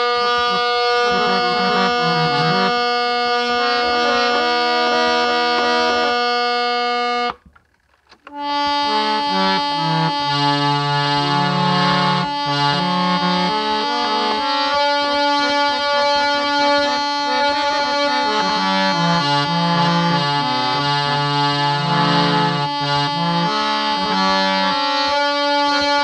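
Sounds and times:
harmonium drone note: 0.0s - 7.4s, 8.3s - 26.0s
low bass notes: 0.0s - 7.4s
harmonium melody: 0.0s - 26.0s.

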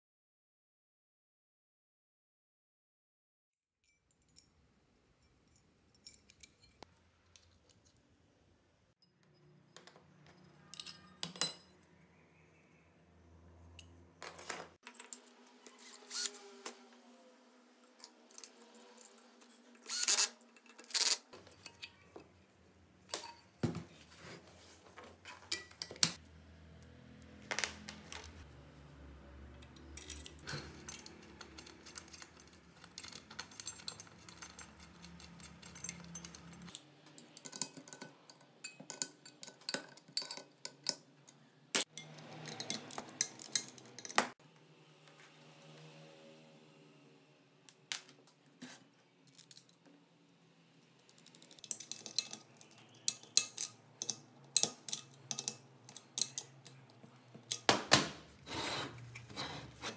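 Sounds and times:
metal brackets and screws clinking: 5.2s - 7.7s, 9.0s - 11.9s, 13.7s - 16.4s, 18.0s - 22.2s, 23.1s - 23.6s, 25.2s - 26.2s, 29.5s - 41.1s, 41.8s - 44.4s, 51.0s - 57.8s.

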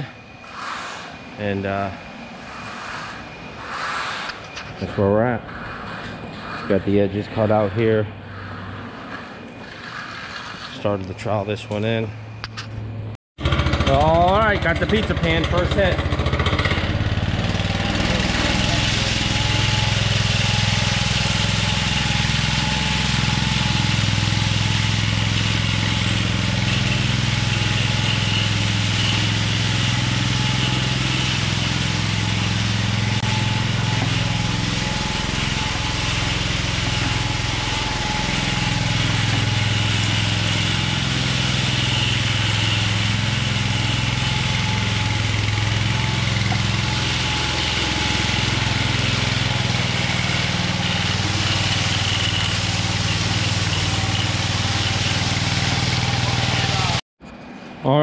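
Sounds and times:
small gas engine running: 13.4s - 57.0s.

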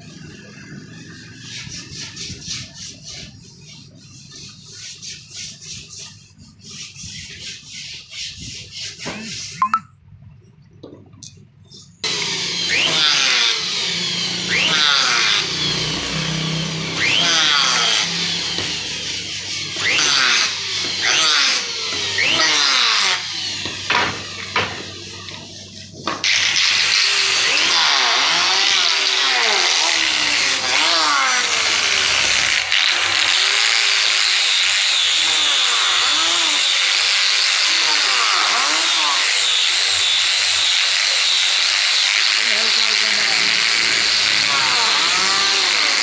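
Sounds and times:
electric hand planer cutting wood: 12.0s - 46.0s.

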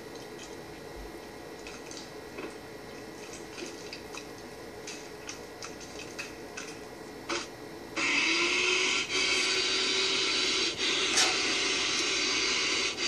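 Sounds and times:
faint steady hum: 0.0s - 13.0s
wet squelches of sticky food: 0.1s - 7.2s.

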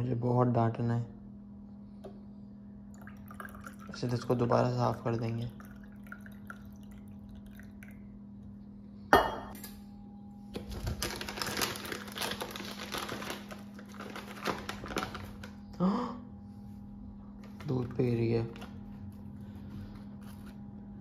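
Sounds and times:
crinkling and rustling: 10.5s - 15.6s.

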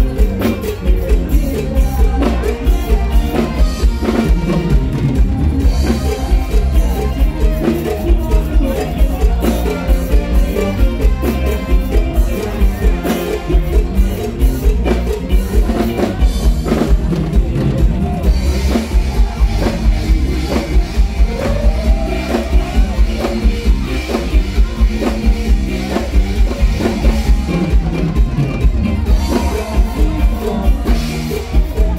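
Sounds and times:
drum kit beat: 0.0s - 31.9s
live band music: 0.0s - 31.9s.

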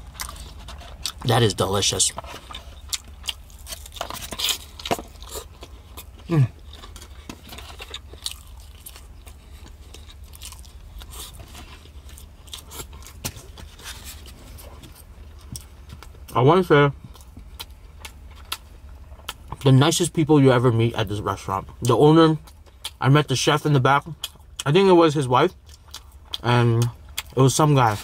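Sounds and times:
person humming mm: 6.3s - 6.5s.

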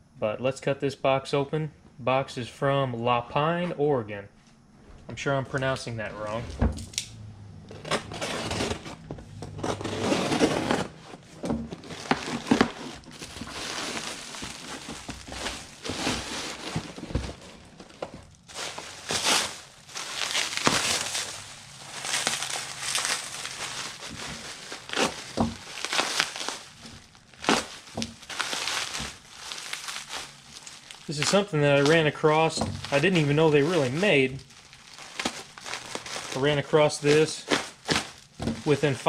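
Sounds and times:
plastic bag crinkling: 7.7s - 39.0s
utility knife cutting cardboard box: 7.8s - 14.0s.

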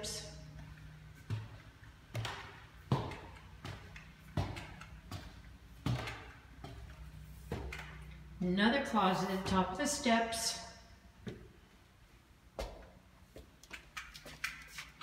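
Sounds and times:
footsteps on wooden stairs: 0.5s - 8.2s, 12.6s - 13.6s.

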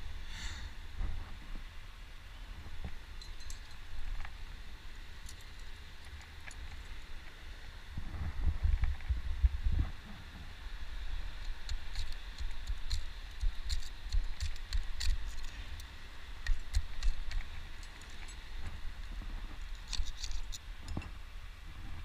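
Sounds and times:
metal climbing gear clinking: 3.2s - 4.3s, 5.2s - 7.1s, 11.4s - 21.1s
wind buffeting microphone: 7.9s - 10.6s.

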